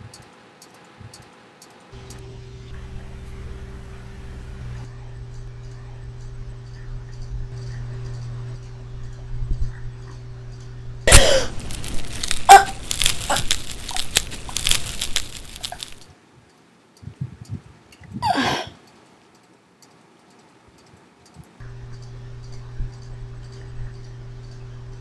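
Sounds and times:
low hum: 0.0s - 16.1s, 21.4s - 25.0s.

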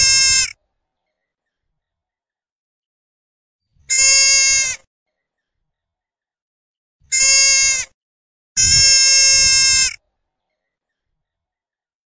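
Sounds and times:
animal bleating: 0.0s - 0.6s, 3.9s - 4.9s, 7.0s - 8.0s, 8.6s - 10.0s.

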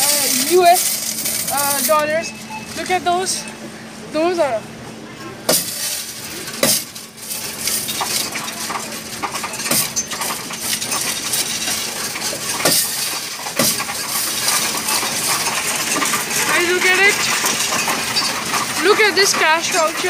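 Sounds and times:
coins clinking and sliding: 0.0s - 2.9s, 5.5s - 20.0s
sharp metal clacks: 5.5s - 20.0s.

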